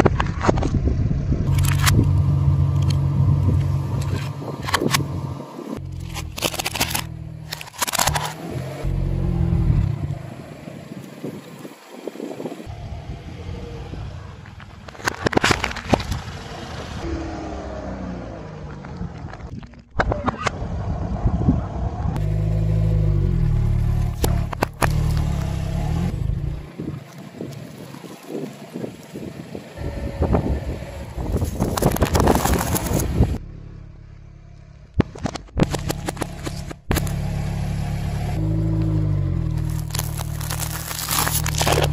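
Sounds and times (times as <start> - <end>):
car engine hum: 0.0 - 41.9
tyre crushing plastic toy crackling: 5.9 - 8.4, 31.6 - 33.1, 39.5 - 41.9
car idling: 22.2 - 41.9
drink can crushed under tyre: 39.6 - 41.9.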